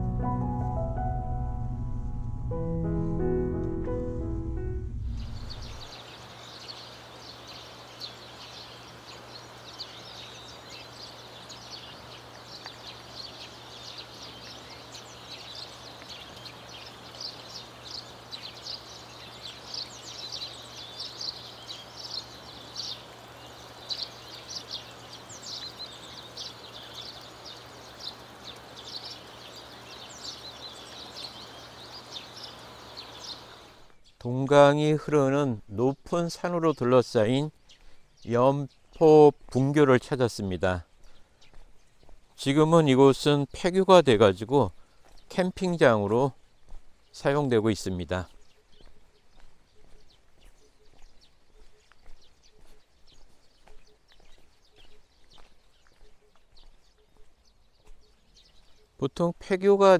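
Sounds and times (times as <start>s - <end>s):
small birds chirping: 4.9s - 59.9s
steady background hiss: 5.3s - 44.9s.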